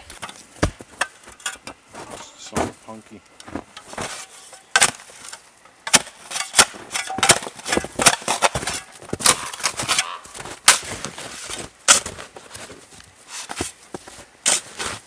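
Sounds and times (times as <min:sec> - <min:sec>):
shovel crunching into snow: 0:01.9 - 0:15.0
shovel scraping snow: 0:03.5 - 0:15.0.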